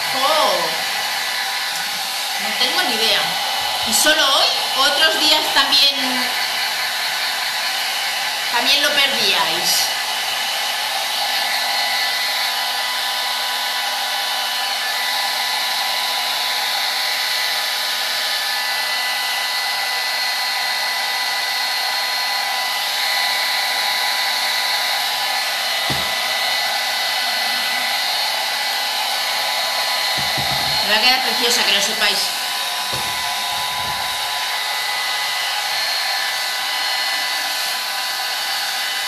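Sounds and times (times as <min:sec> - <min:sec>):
hair dryer running: 0:00.0 - 0:39.0
soft bump: 0:25.9 - 0:26.2, 0:30.2 - 0:30.8, 0:32.9 - 0:34.2.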